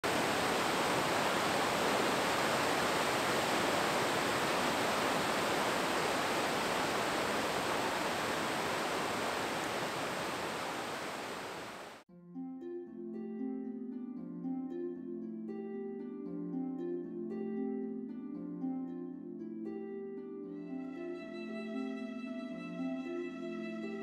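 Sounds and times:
water rushing: 0.0 - 12.0
plucked harp-like music: 12.1 - 24.0.

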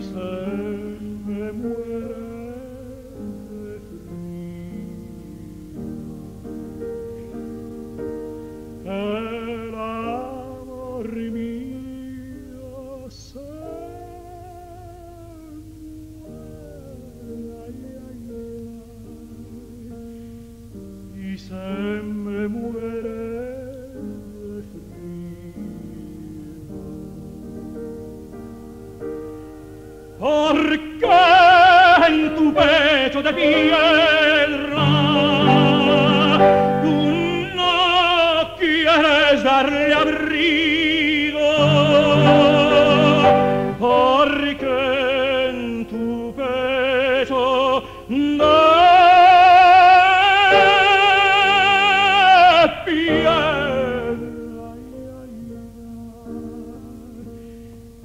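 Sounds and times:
tenor singing with vibrato: 0.0 - 7.7, 8.4 - 28.3, 30.0 - 58.0
guitar accompaniment: 41.4 - 45.2.

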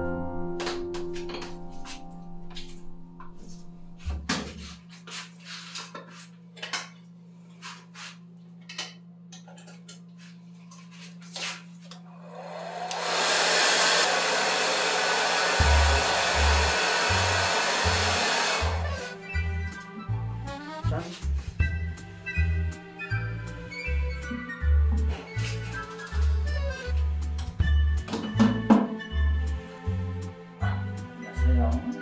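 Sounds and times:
background music: 0.0 - 4.1, 15.6 - 32.0
loud rushing hiss: 12.3 - 19.1.

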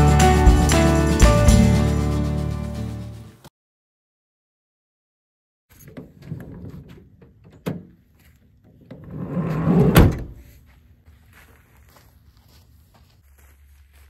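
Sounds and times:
sliding van door slamming shut: 9.2 - 10.4.

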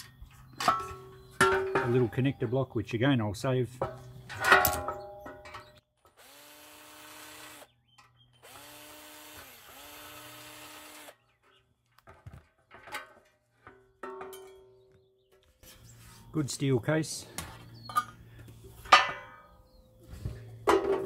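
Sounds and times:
drill-driver motor running: 6.2 - 7.7, 8.4 - 11.1.

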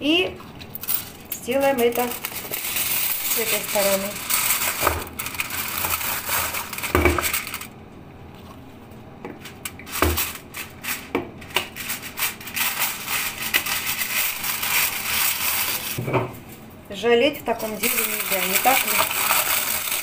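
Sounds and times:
kitchen foil crinkling: 0.8 - 7.8, 9.8 - 16.0, 17.5 - 20.0.

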